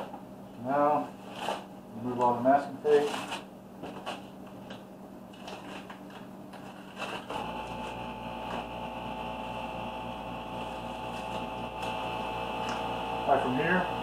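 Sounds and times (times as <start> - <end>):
steady hum: 0.0 - 14.0
tape peeling and crumpling: 2.9 - 7.9.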